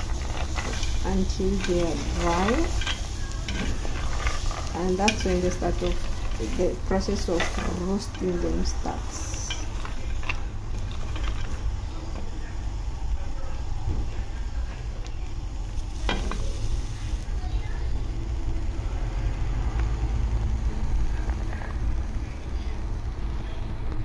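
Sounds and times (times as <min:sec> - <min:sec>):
peanuts rattling in a pan: 0:00.0 - 0:12.6.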